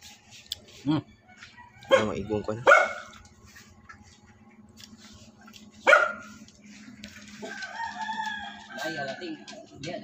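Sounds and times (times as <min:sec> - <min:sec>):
rooster crowing: 0:01.1 - 0:03.3, 0:07.2 - 0:10.0
dog barking: 0:01.9 - 0:03.2, 0:05.8 - 0:06.4.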